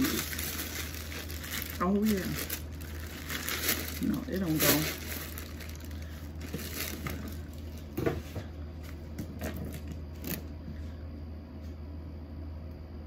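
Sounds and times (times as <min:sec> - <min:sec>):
steady low hum: 0:00.0 - 0:13.0
items being moved and set down: 0:03.2 - 0:10.4.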